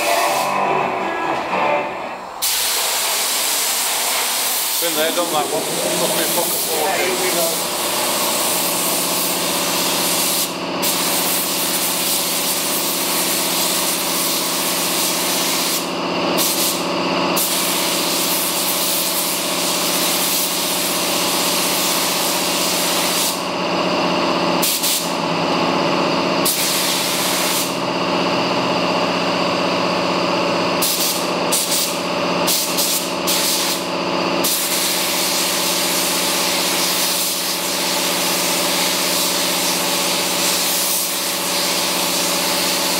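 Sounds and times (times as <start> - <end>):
steady hum: 0.0 - 4.3, 4.9 - 10.6
paint spray gun hissing: 2.4 - 23.5, 24.6 - 25.2, 26.4 - 27.8, 30.8 - 42.9.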